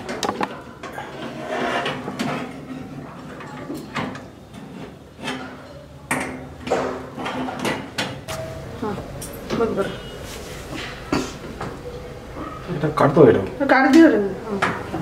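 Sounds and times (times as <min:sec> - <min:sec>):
metallic clicks and knocks: 0:00.1 - 0:00.6.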